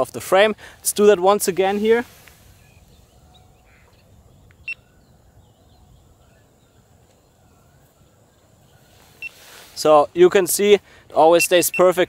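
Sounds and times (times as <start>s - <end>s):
faint birds chirping: 0.0s - 12.0s.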